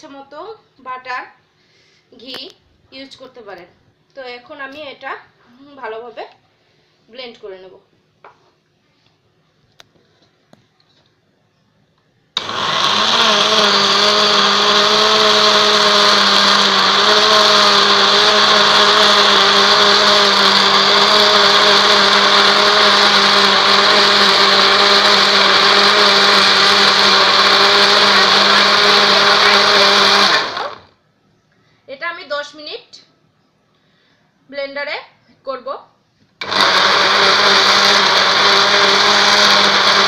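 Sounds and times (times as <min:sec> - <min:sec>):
electric blender motor running: 0:12.4 - 0:30.9, 0:36.4 - 0:40.0.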